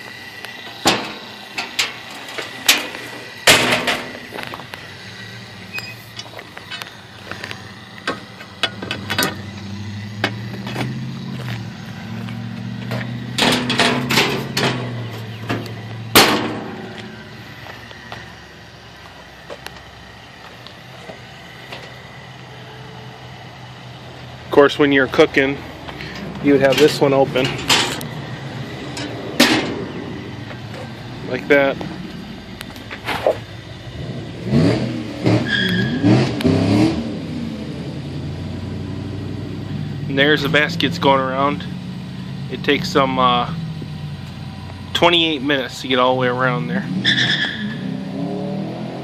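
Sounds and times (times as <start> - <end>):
low motor hum: 0.0 - 46.8
vehicle engine revving: 0.0 - 49.0
metal panels clanking: 0.7 - 4.5, 12.8 - 17.2, 26.0 - 28.2, 28.9 - 31.0
loud metal bang: 0.8 - 4.3, 13.2 - 17.2, 29.0 - 30.2.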